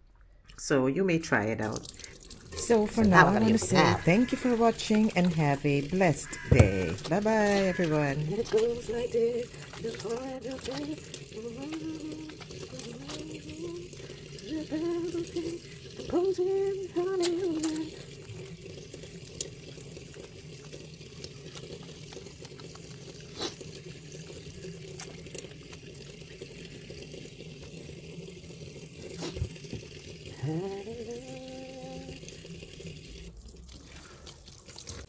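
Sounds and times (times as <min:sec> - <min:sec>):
hands lathering soap: 0:01.6 - 0:35.0
tap water running into sink: 0:01.6 - 0:35.0
person humming: 0:02.6 - 0:05.0, 0:06.2 - 0:18.0, 0:30.3 - 0:32.3.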